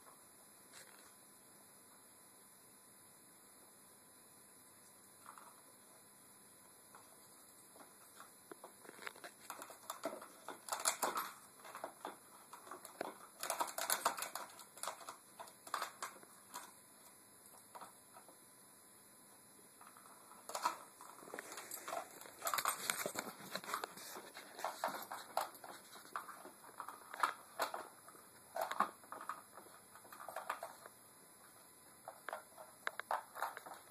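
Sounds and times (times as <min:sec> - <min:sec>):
puppy clattering a plastic toy: 0:08.9 - 0:16.7, 0:32.0 - 0:33.9.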